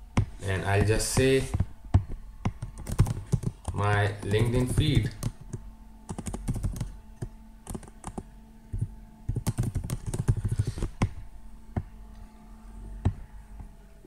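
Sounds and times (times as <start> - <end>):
computer keyboard typing: 1.0 - 6.9, 7.6 - 11.1.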